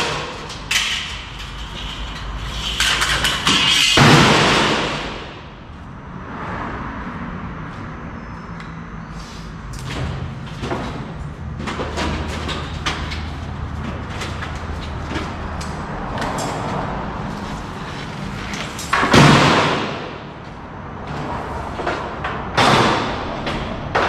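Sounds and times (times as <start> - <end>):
loud bangs: 3.3 - 5.6, 18.9 - 20.4.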